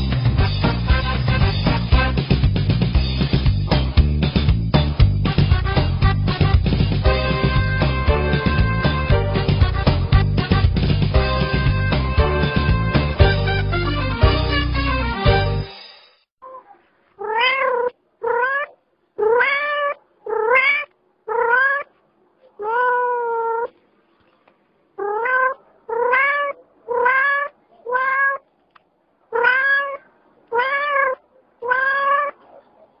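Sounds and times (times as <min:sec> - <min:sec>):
cat meowing: 0:16.4 - 0:23.8, 0:25.0 - 0:28.5, 0:29.3 - 0:32.6.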